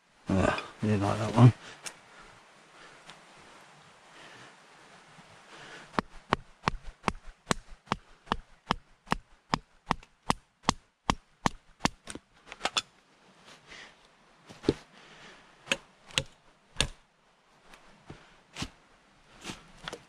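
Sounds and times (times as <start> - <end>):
blade chopping into wood: 15.7 - 17.0.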